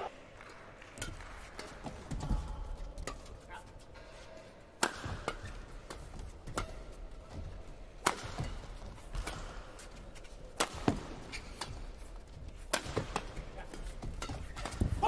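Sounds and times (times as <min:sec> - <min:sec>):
rackets hitting a shuttlecock: 0:01.0 - 0:03.4, 0:04.8 - 0:15.0.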